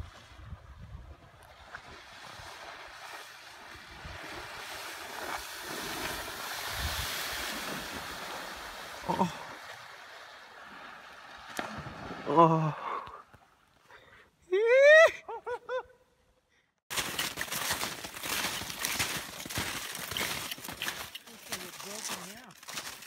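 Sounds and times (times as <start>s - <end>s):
water spray hissing from surfboard: 1.9s - 12.2s
person shouting: 14.5s - 15.2s.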